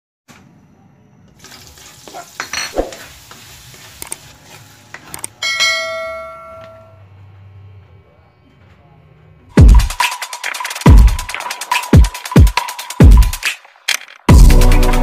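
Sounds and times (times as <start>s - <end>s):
garlic sizzling in oil: 1.4s - 4.9s
bell-like metallic ring: 5.4s - 7.0s.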